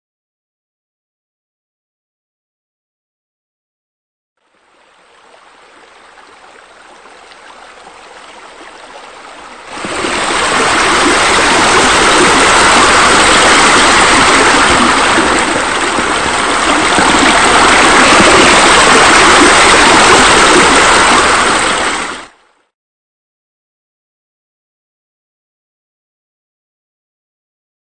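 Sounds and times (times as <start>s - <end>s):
running water rushing: 4.4s - 22.6s.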